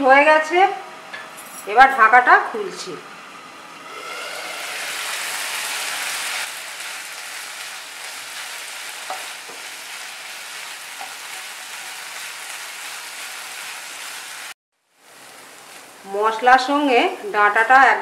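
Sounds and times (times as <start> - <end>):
food sizzling in a pan: 3.8 - 17.1.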